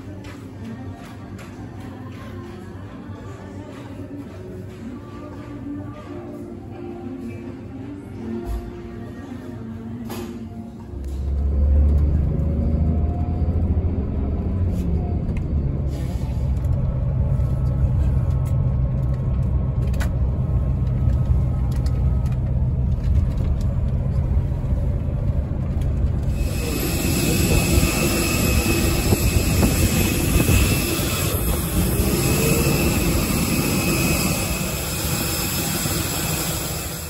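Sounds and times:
vehicle rumble from inside: 10.9s - 35.0s
jet airliner hiss: 26.4s - 37.0s.

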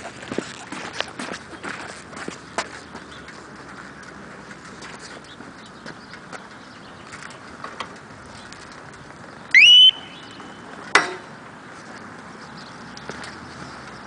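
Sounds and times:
motorcycle alarm rising chirp: 9.5s - 10.7s.

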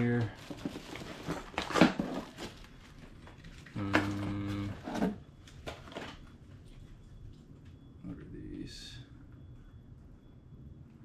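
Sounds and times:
plastic packaging rustling: 0.0s - 7.0s
steady low hum: 0.0s - 11.0s.

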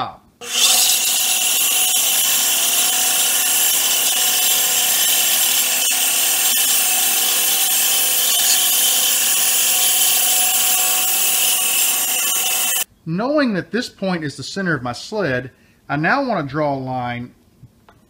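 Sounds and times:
bandsaw blade cutting wood: 0.4s - 12.9s.

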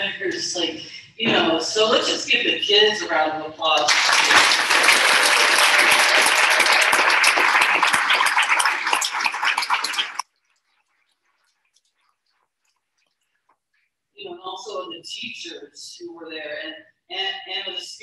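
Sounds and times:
audience applauding: 3.9s - 10.2s.

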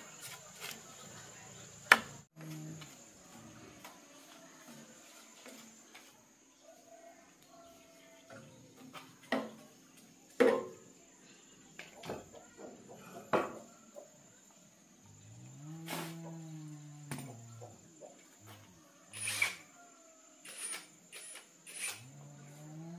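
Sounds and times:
cow mooing: 15.3s - 17.5s, 22.0s - 22.9s.

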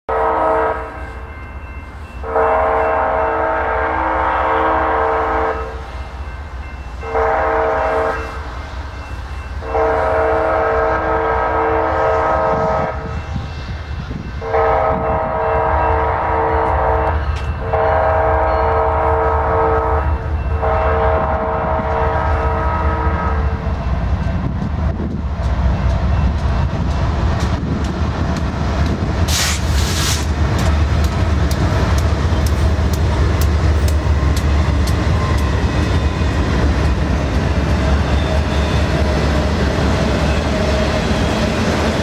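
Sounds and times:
locomotive air horn blasts: 0.1s - 1.0s, 2.2s - 6.0s, 7.0s - 8.4s, 9.6s - 13.2s, 14.4s - 23.6s.

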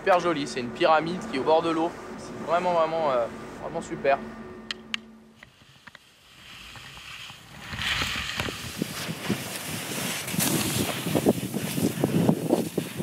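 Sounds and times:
skis scraping on turns: 5.5s - 13.0s
skis sliding through snow: 5.5s - 13.0s
wind rushing: 7.5s - 13.0s.

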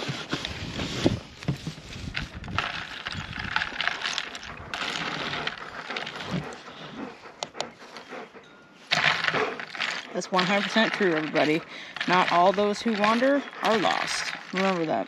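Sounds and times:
spoon stirring iced coffee: 2.2s - 6.5s, 8.9s - 15.0s
ice clinking: 2.5s - 6.2s, 8.9s - 15.0s.

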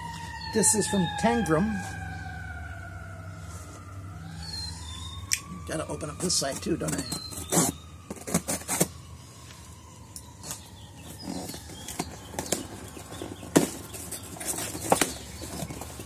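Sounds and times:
cardboard rustling: 6.3s - 9.0s, 10.4s - 16.0s.

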